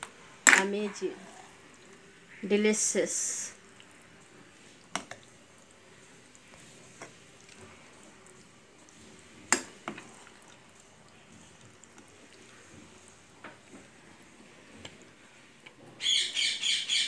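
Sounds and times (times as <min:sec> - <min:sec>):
spoon stirring thick gravy: 0:03.6 - 0:15.8
bird chirping: 0:16.0 - 0:17.0.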